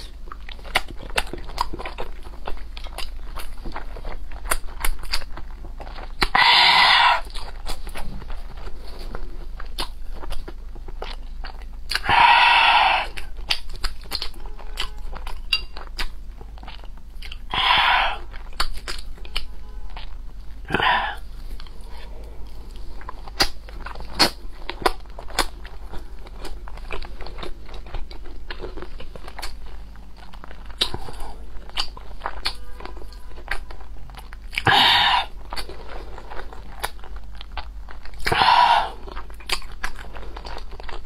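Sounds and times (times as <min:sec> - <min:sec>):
wet mouth chewing sounds: 0:00.0 - 0:41.0.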